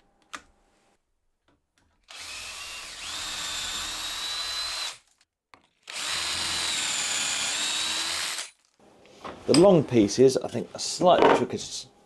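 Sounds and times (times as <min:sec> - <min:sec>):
cordless drill whining: 0:02.1 - 0:05.2, 0:05.8 - 0:08.6.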